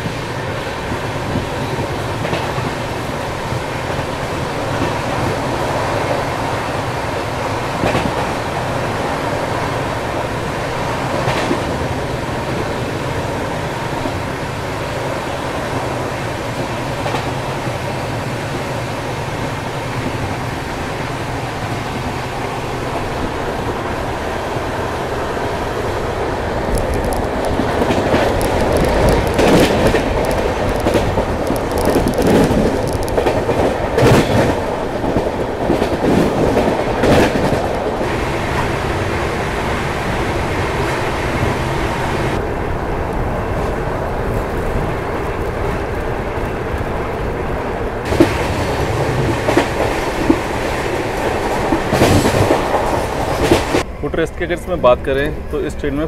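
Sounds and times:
wheels clacking over rail joints: 0:00.0 - 0:42.4, 0:43.1 - 0:53.9
train wheels rumbling on rails: 0:00.0 - 0:56.0.

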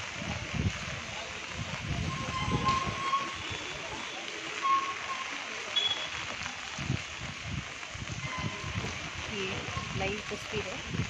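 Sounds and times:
rain on wet street: 0:00.0 - 0:11.0.

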